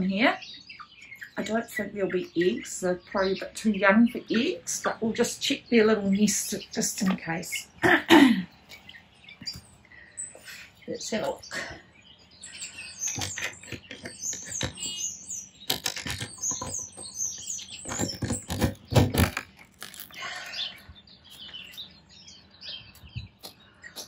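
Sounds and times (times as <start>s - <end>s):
high bird chirps: 8.5s - 24.0s
wooden nest box knocking and clatter: 13.1s - 15.0s, 15.7s - 20.1s.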